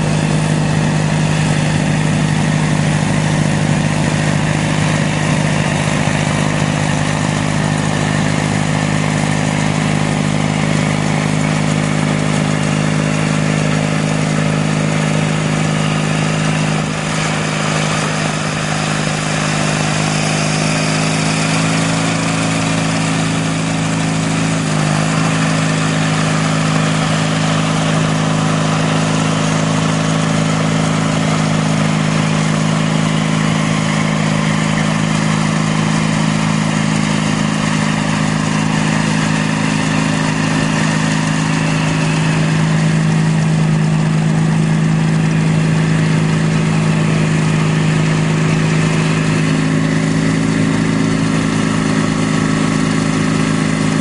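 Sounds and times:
garden tractor engine running: 0:00.0 - 0:54.0
snowblower blowing snow: 0:00.0 - 0:54.0.

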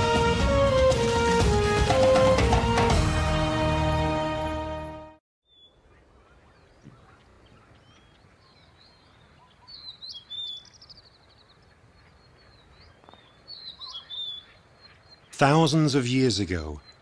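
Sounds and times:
small birds chirping: 0:05.4 - 0:17.0.

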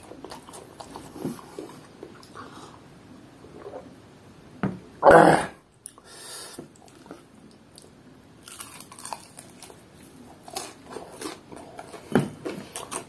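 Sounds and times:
crunchy chewing of fried chicken: 0:00.0 - 0:02.8, 0:06.7 - 0:13.0.

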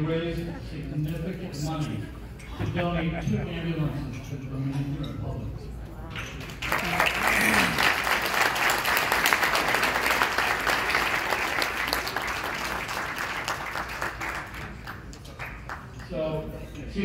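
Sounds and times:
audience applauding: 0:06.5 - 0:16.0.

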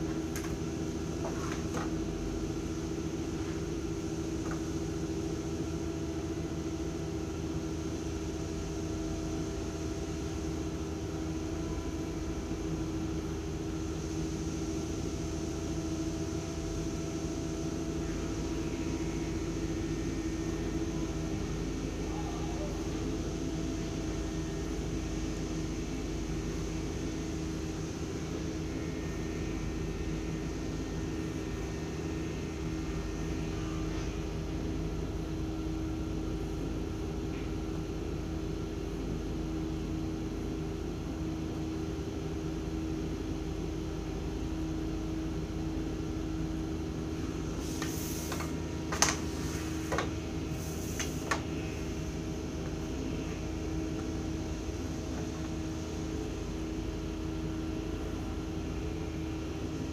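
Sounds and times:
electrical hum with pitched tones: 0:00.0 - 0:59.9.

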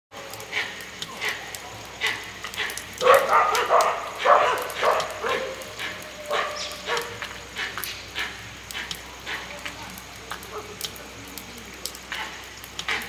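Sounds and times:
dogs barking: 0:00.5 - 0:09.5.

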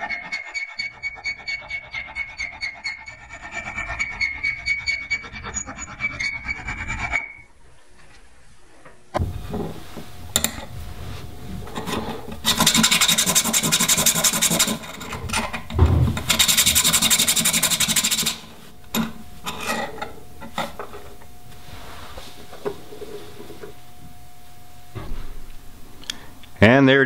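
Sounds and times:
metal filing rasp: 0:00.0 - 0:07.4, 0:11.7 - 0:20.8.

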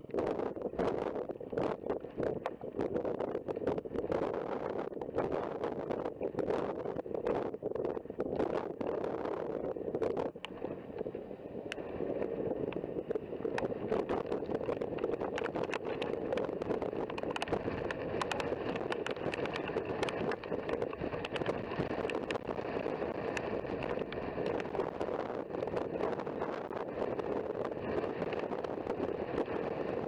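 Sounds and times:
wind rushing across microphone: 0:00.0 - 0:30.0
sharp ticks: 0:14.7 - 0:22.5.

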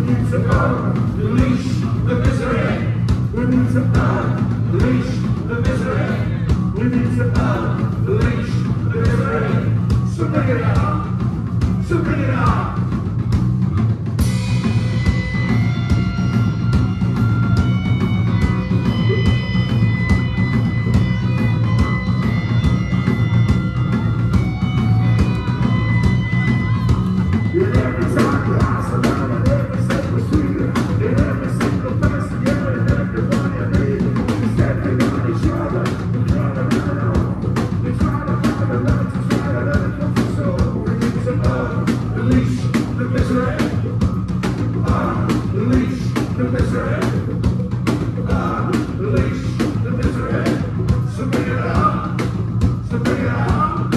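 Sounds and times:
drum beat: 0:00.0 - 0:22.0, 0:22.6 - 0:53.9
loud electric guitars: 0:00.0 - 0:53.9
high held guitar notes: 0:14.2 - 0:28.9
wavering guitar line: 0:14.2 - 0:37.8.

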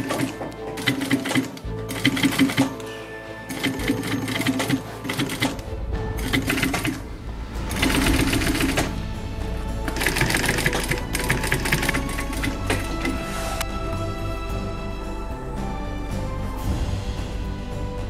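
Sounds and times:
sewing machine stitching: 0:00.0 - 0:02.9, 0:03.5 - 0:07.0, 0:07.7 - 0:09.0, 0:09.9 - 0:13.6
background music: 0:00.0 - 0:18.0.

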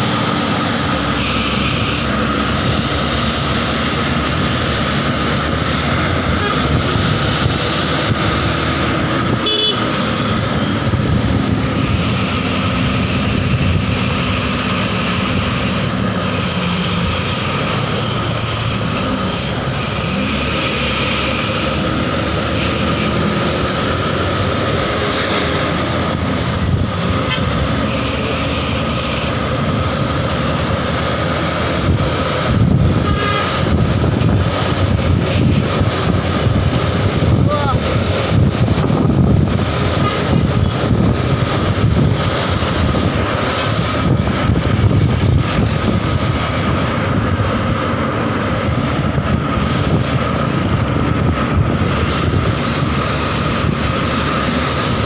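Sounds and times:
engine and road noise: 0:00.0 - 0:55.0
musical bus air horn: 0:06.2 - 0:07.1, 0:09.4 - 0:10.1, 0:32.9 - 0:33.7, 0:39.9 - 0:40.5.

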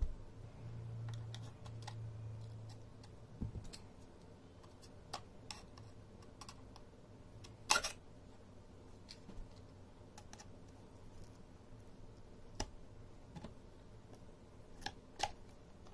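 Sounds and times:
low hum: 0:00.0 - 0:03.4.

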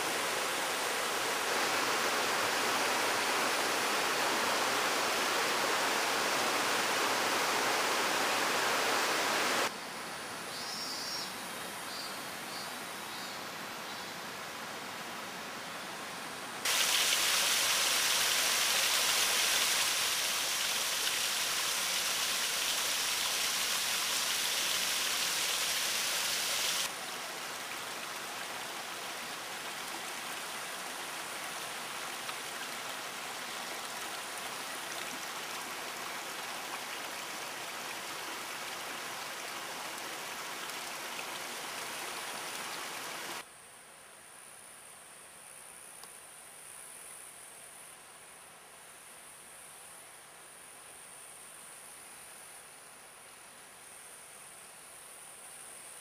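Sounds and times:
stream flowing over rocks: 0:00.0 - 0:09.7, 0:16.6 - 0:43.4.

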